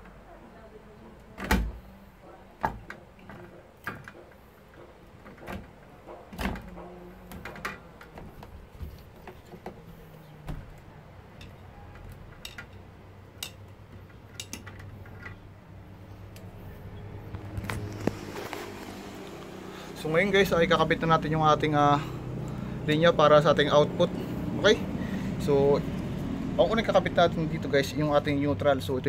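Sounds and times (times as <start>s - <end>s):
clicks and knocks of hardware: 2.6s - 15.4s.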